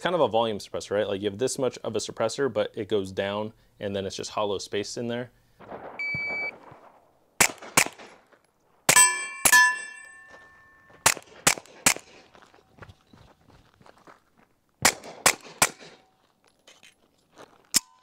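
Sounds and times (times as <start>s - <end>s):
suppressed pistol shots: 5.6s - 8.3s, 11.0s - 12.3s, 14.8s - 16.1s
steel target ringing: 8.9s - 11.0s.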